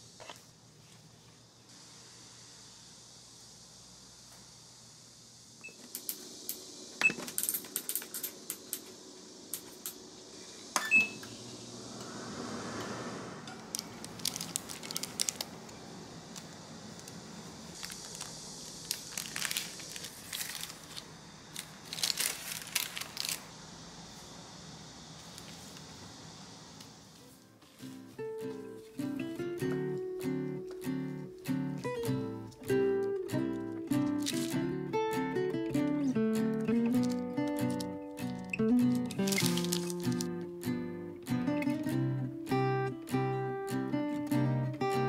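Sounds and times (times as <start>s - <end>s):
parchment paper crinkling: 13.8s - 15.7s, 16.4s - 23.5s, 34.1s - 34.5s, 36.9s - 40.3s.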